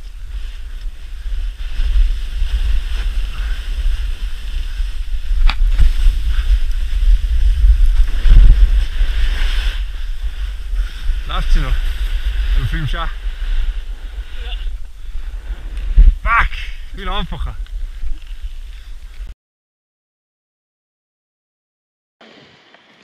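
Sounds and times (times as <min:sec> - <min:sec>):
snowboard scraping on snow: 0:00.0 - 0:16.1
wind buffeting microphone: 0:00.0 - 0:19.3.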